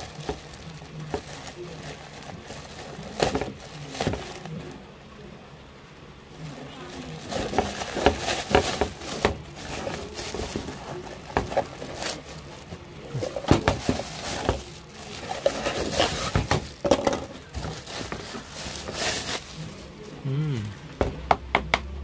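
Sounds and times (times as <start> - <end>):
plastic bag crinkling: 0.0 - 4.9, 6.3 - 20.2.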